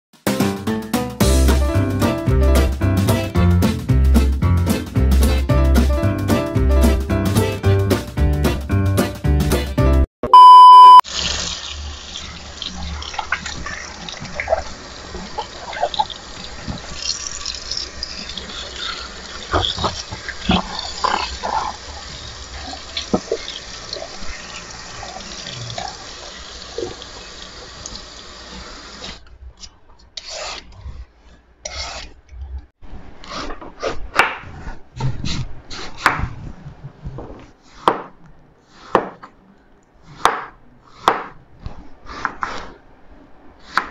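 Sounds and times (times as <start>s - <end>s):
knife chopping on wooden board: 37.8s - 38.2s, 38.9s - 39.3s, 40.2s - 41.4s.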